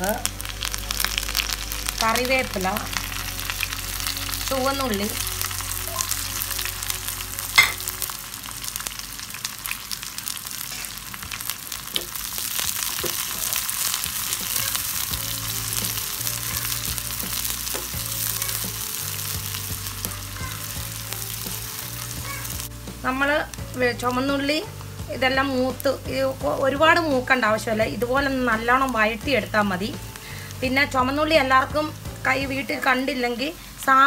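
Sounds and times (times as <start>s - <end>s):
vegetables sizzling in hot oil: 0.0s - 34.0s
metal spatula scraping a pan: 7.6s - 8.0s.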